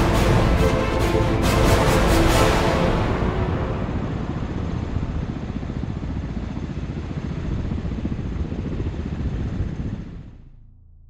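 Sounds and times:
helicopter rotors pulsing: 0.0 - 10.5.

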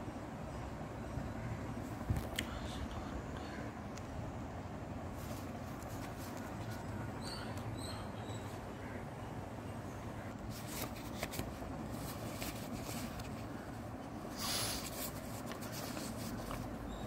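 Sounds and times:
low background hum: 0.0 - 17.0
banknote crinkling: 10.4 - 13.6, 14.4 - 16.9.

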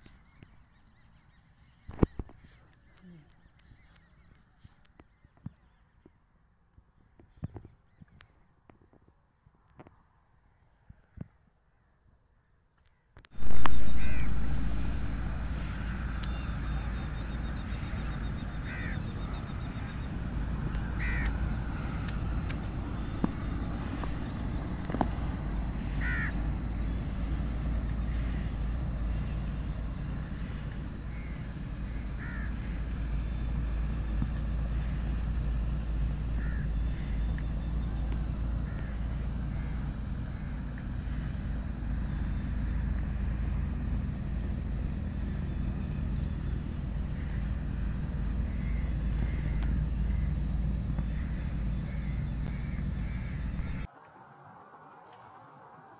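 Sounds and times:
night insects chirring: 0.0 - 54.5
short chirping calls: 13.4 - 53.9
low rumble: 13.4 - 55.9.

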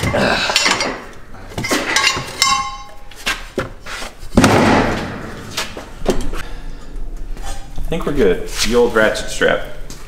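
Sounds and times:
ringing metallic clink: 1.9 - 3.0.

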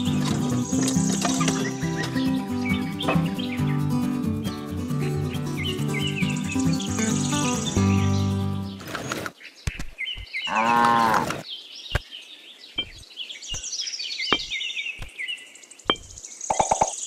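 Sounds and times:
high chirping: 0.0 - 8.8, 12.7 - 17.0
cow mooing: 10.5 - 11.4.

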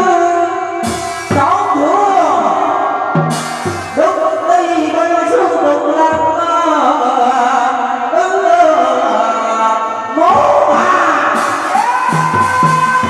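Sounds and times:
traditional opera singing: 5.3 - 13.0.

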